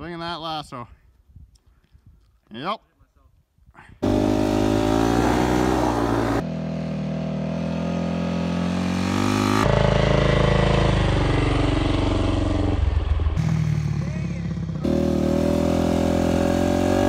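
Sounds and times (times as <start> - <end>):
dirt bike engine accelerating: 4.0 - 17.0.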